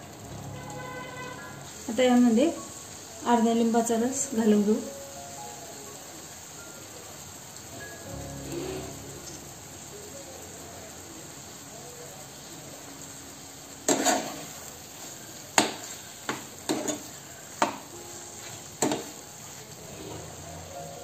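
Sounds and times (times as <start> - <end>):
food sizzling in a frying pan: 0.0 - 21.0
steel spoon scraping a pan: 13.9 - 15.2, 15.8 - 17.2.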